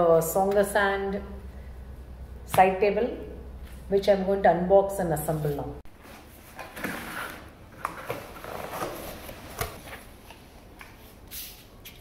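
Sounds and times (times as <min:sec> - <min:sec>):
cardboard rustling and scraping: 0:06.0 - 0:10.1.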